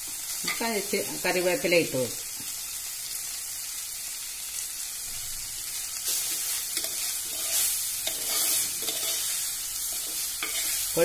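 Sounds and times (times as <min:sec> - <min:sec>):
oil sizzling in a pot: 0:00.0 - 0:11.0
metal spoon scraping a pot: 0:06.1 - 0:10.9.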